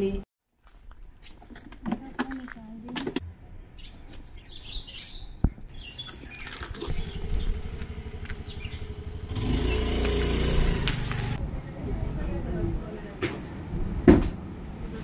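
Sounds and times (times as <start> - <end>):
birds chirping: 3.4 - 11.4
motor scooter engine running: 6.7 - 11.4.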